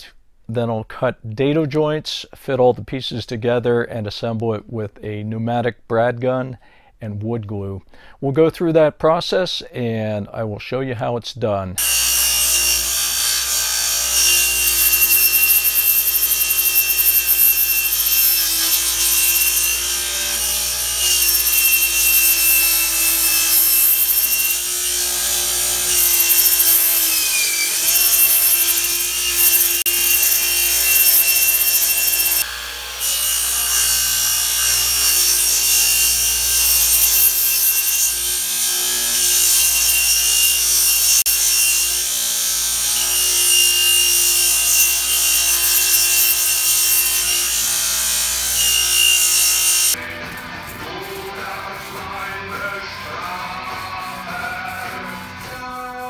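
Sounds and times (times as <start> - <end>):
radial arm saw cutting plywood: 11.8 - 50.0.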